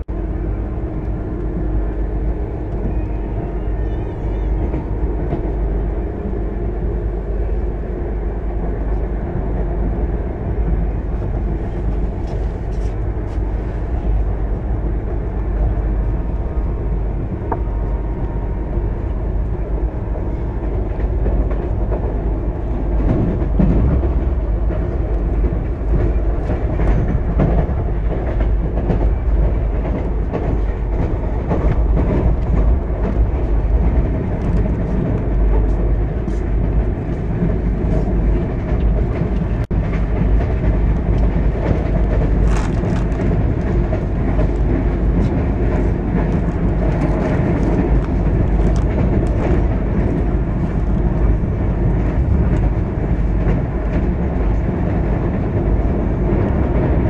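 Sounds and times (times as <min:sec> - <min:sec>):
train wheels rumbling on rail: 0:00.0 - 0:57.0
wheels clicking over rail joints: 0:20.6 - 0:57.0.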